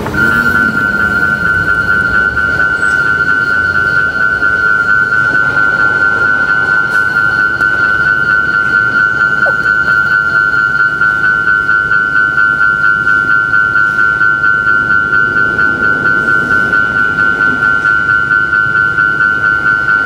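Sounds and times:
level crossing bell dinging: 0.0s - 20.0s.

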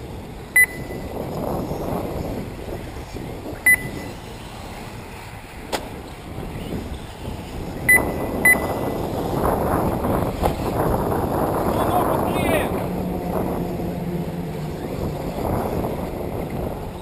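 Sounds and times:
short electronic beeps: 0.6s - 1.0s, 3.6s - 4.2s, 7.9s - 8.8s.

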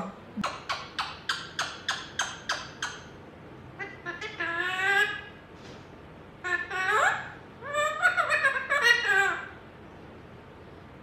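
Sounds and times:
parrot calling: 0.4s - 5.4s, 6.4s - 9.6s.

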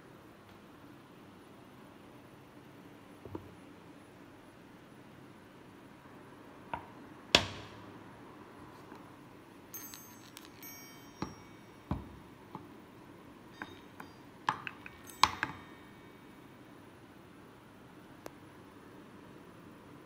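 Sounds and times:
chiming balls ringing: 9.7s - 12.8s, 13.4s - 16.7s
light knocks and clinks: 9.8s - 12.7s, 13.5s - 16.0s.

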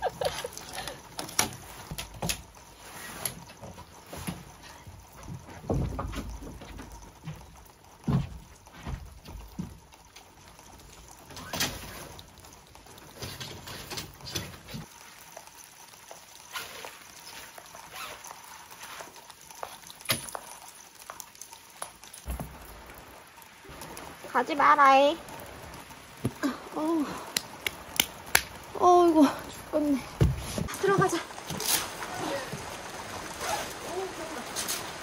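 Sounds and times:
light rain pattering: 0.0s - 35.0s
tent fabric and poles handled: 0.2s - 4.8s, 16.5s - 20.5s.

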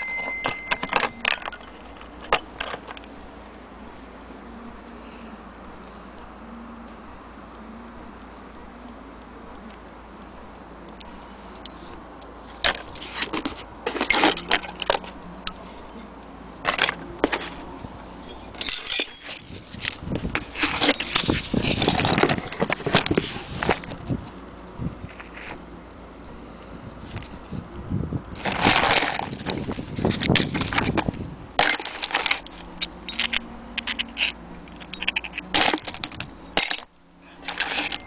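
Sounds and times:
brass clock parts clinking: 0.0s - 3.1s, 12.6s - 15.6s, 18.2s - 22.9s, 31.6s - 38.0s.

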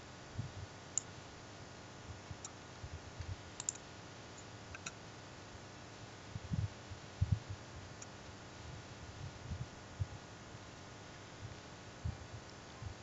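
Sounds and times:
faint computer mouse clicks: 3.2s - 3.8s, 4.4s - 5.0s.

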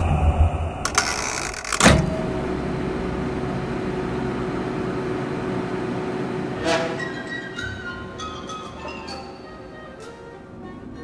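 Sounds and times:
microwave electric hum: 0.9s - 7.7s.

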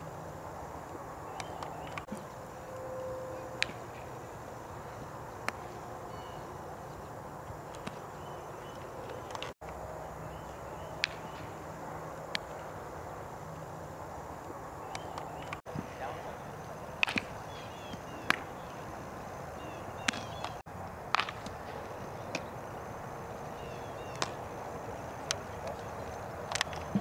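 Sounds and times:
bat cracking against ball: 3.5s - 4.2s, 11.0s - 11.6s, 17.0s - 18.6s, 20.0s - 22.5s, 24.1s - 24.4s.

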